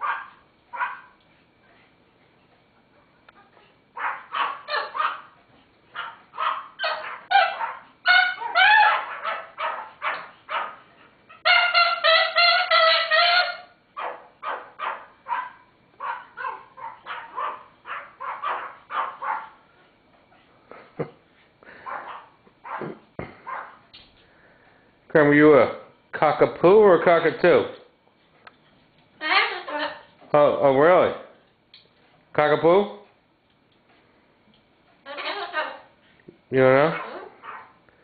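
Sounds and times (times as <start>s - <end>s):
cockatoo mimicking barks: 0.0s - 1.1s, 3.3s - 19.6s, 21.7s - 23.9s, 36.8s - 37.8s
small dogs yapping: 0.0s - 1.2s, 3.3s - 20.5s, 21.7s - 23.9s, 36.8s - 37.8s.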